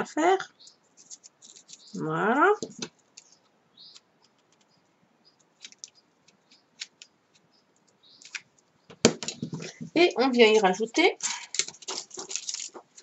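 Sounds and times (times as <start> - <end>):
paper rustling: 0.9 - 2.0, 9.4 - 13.0.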